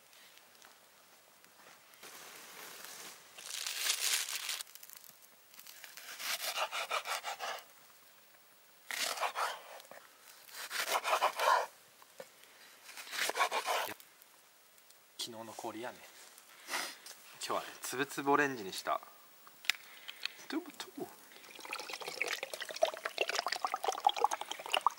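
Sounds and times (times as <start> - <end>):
knife sawing onion on wooden board: 6.0 - 7.6, 9.0 - 9.7, 10.6 - 11.7, 13.1 - 14.0.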